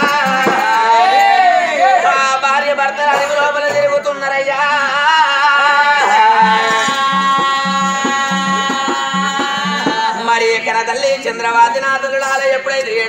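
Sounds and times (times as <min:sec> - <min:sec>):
drum beating steady rhythm: 0:00.0 - 0:01.6, 0:06.0 - 0:10.7
folk singing voices: 0:00.0 - 0:13.0.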